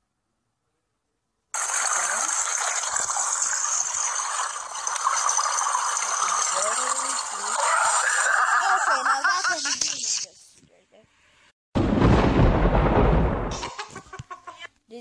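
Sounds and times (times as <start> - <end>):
gushing pool water: 1.6 - 10.2.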